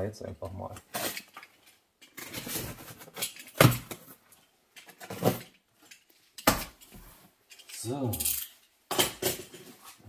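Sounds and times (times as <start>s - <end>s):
cardboard parcel scraping and rustling: 2.2s - 3.2s.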